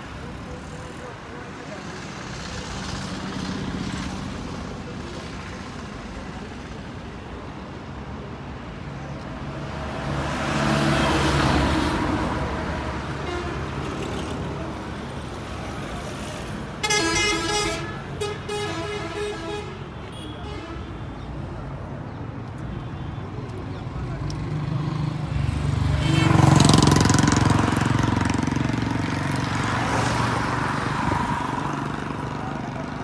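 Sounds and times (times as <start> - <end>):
road traffic passing: 0.0 - 33.0
vehicle horn honking: 16.8 - 21.2.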